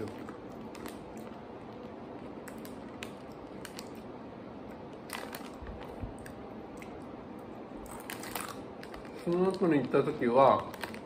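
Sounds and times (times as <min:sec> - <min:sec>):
crunchy snack being chewed: 0:04.9 - 0:07.0, 0:07.8 - 0:09.7.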